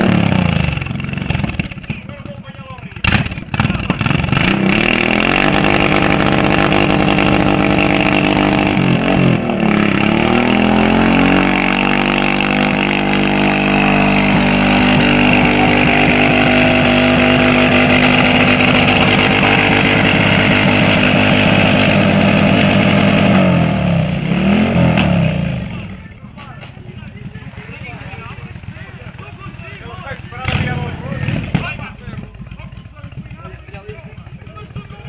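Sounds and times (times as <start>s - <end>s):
car engine revving high: 3.0s - 26.0s
tyre squealing: 10.0s - 22.6s.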